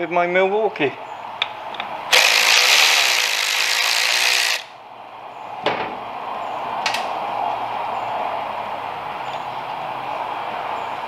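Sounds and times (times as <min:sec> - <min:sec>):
electric ratchet running: 0:02.1 - 0:04.7.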